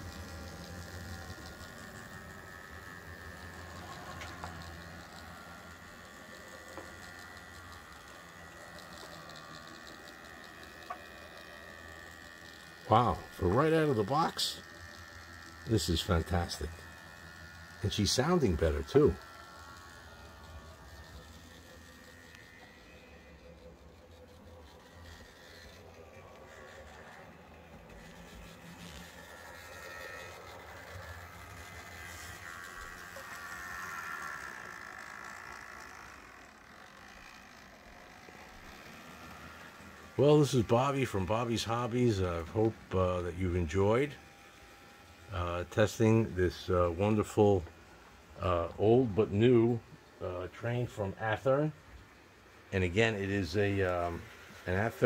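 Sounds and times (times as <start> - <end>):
model train motor humming: 0.0 - 55.0.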